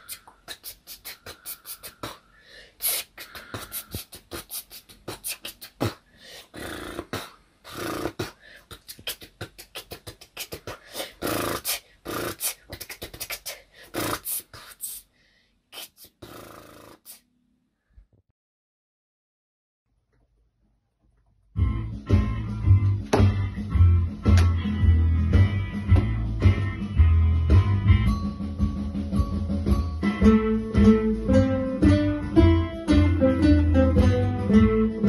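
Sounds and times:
boy beatboxing: 0.0 - 15.1, 15.7 - 17.3.

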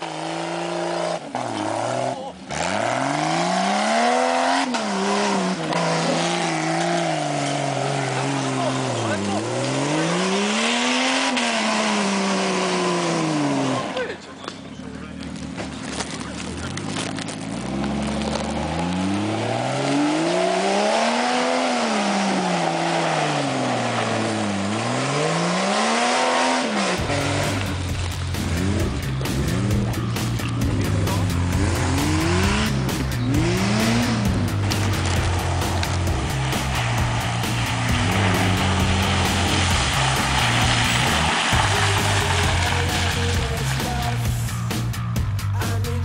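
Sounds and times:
car engine revving: 0.0 - 46.0
wheels spinning in mud: 13.6 - 20.6, 33.1 - 44.3.

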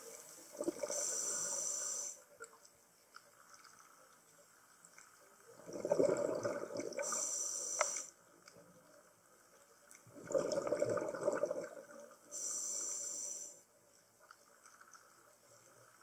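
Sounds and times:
exhaled air bubbling: 0.0 - 1.2, 5.5 - 7.3, 10.0 - 12.4.

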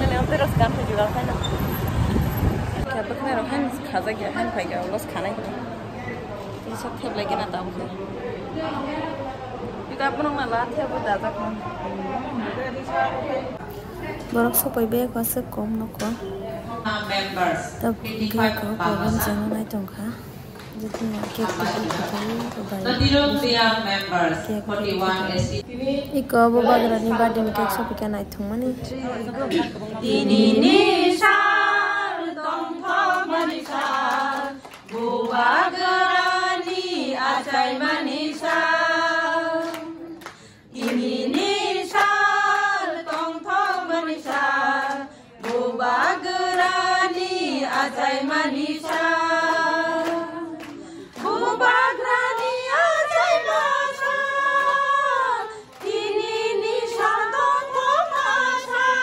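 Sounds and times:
women singing unaccompanied: 17.8 - 23.5, 24.4 - 59.0.

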